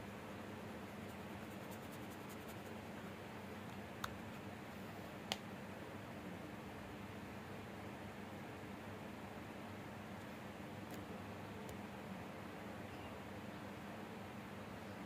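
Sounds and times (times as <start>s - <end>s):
steady low hiss: 0.0s - 15.0s
pencil clicking on paper: 1.0s - 2.7s
pencil scratching on paper: 1.0s - 2.7s.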